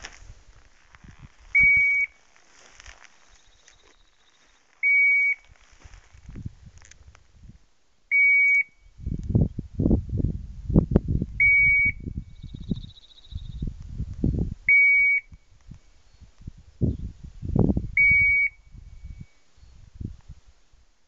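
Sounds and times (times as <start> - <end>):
low rumbling microphone noise: 0.0 - 3.6, 4.4 - 21.0
high beeper collar beep: 1.6 - 2.1, 4.8 - 5.4.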